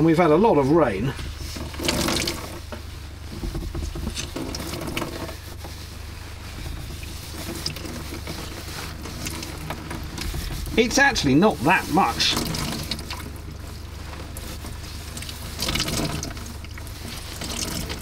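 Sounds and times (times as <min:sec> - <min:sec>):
water dripping into a bucket: 0:15.2 - 0:18.0.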